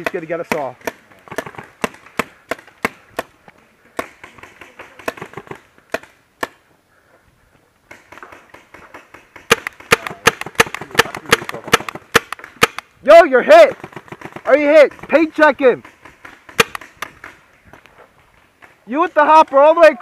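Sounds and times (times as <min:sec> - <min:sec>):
paintball markers firing: 0:00.0 - 0:03.4, 0:04.0 - 0:06.6, 0:07.9 - 0:12.9, 0:13.7 - 0:17.8.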